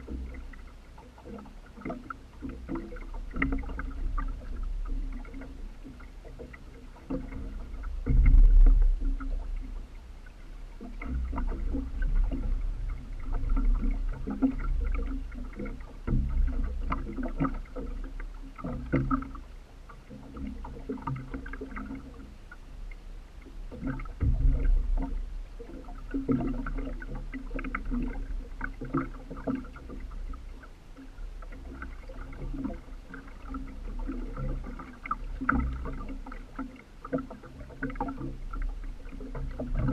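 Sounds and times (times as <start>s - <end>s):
water splashing against boat hull: 0.0s - 39.9s
low thumps: 7.4s - 14.6s, 24.1s - 25.4s.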